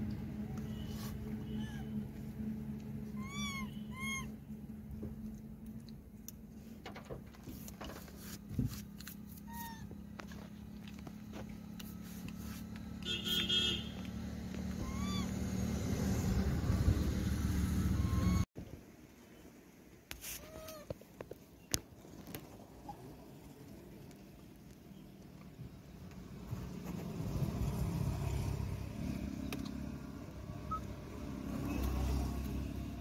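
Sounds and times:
motorcycle passing: 0:11.0 - 0:18.4, 0:26.3 - 0:33.0.

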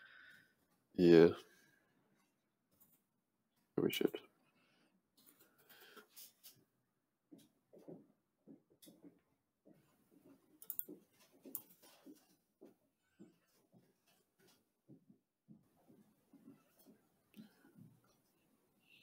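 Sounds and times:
keyboard and mouse clicks: 0:10.6 - 0:11.8.

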